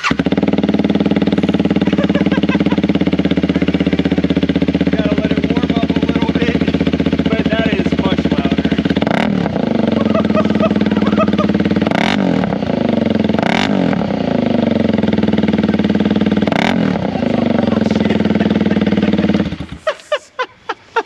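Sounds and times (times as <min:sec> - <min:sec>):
loud motorcycle engine revving: 0:00.0 - 0:20.0.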